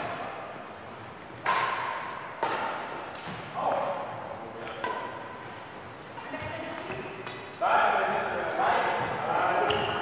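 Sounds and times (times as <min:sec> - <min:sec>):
racket hitting shuttlecock: 0:01.3 - 0:03.8, 0:04.7 - 0:05.3.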